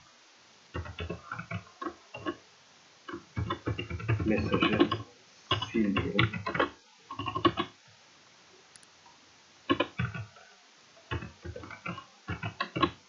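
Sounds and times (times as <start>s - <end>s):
keyboard typing clicks: 0.7s - 2.4s, 3.1s - 7.7s, 9.7s - 10.3s, 11.1s - 13.0s.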